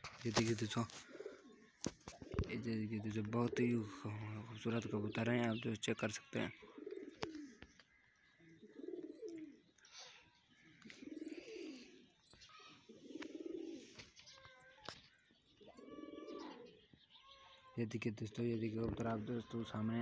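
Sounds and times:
pigeon cooing: 0.4s - 5.6s, 6.6s - 7.7s, 8.4s - 9.7s, 10.7s - 14.7s, 15.6s - 16.8s.

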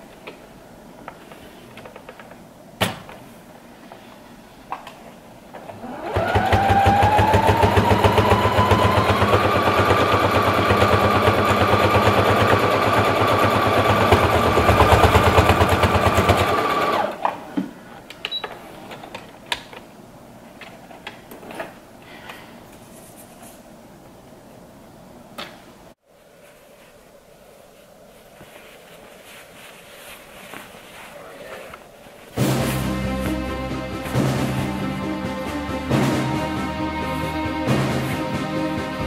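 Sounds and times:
sewing machine stitching: 5.8s - 17.2s.

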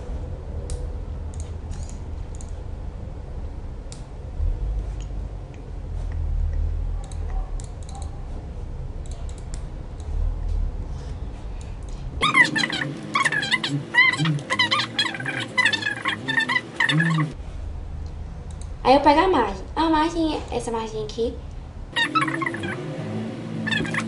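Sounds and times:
steady low hum: 0.0s - 24.0s
mouse and keyboard clicks: 7.0s - 8.2s.

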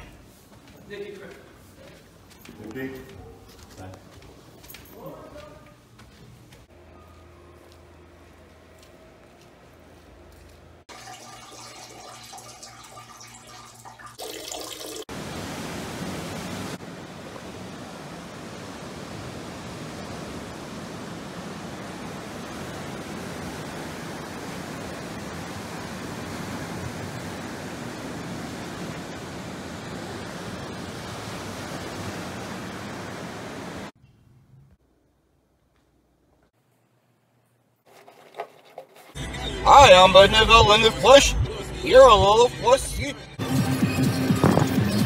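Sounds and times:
ocean surf breaking: 15.1s - 33.9s.

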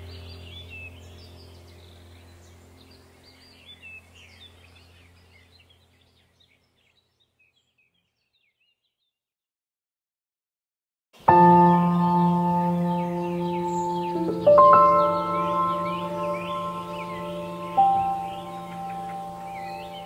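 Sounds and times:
birds chirping: 0.0s - 9.2s, 11.2s - 20.0s
ambient music drone: 11.2s - 20.0s.

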